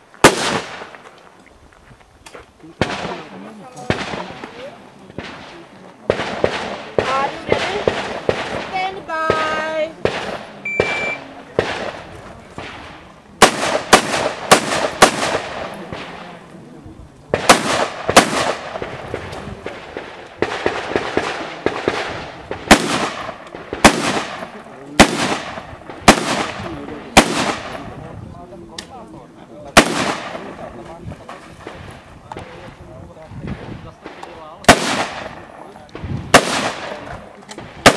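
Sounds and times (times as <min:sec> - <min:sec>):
rifle shots with echo: 0:00.2 - 0:01.0, 0:02.8 - 0:16.4, 0:17.3 - 0:28.1, 0:29.7 - 0:32.8, 0:33.4 - 0:37.9
short electronic beep: 0:10.6 - 0:11.2.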